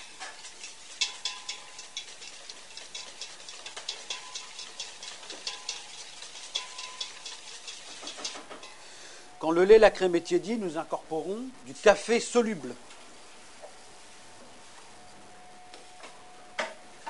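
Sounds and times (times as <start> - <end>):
wire whisk clicking against metal bowl: 0.5 - 8.4.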